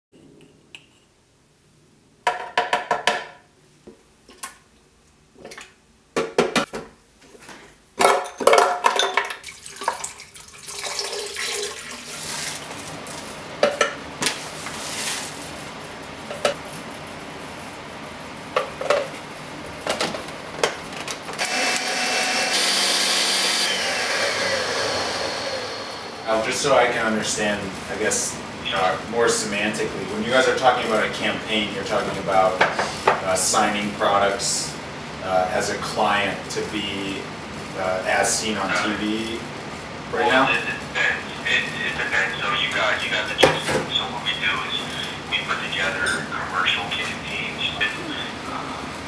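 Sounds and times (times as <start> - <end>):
blender running: 21.4 - 26.4.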